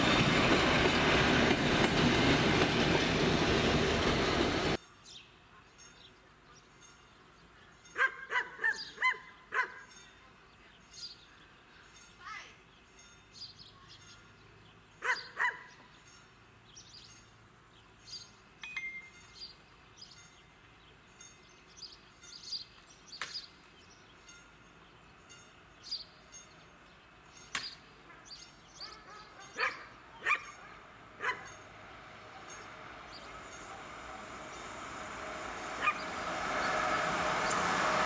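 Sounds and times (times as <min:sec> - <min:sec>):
dog barking: 0:08.0 - 0:09.9, 0:15.0 - 0:15.8, 0:28.8 - 0:31.6, 0:35.8 - 0:36.1.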